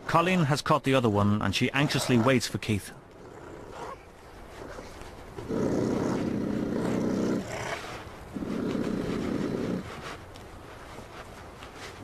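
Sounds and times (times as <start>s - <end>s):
honey badger growling: 1.7s - 2.4s, 3.1s - 10.0s.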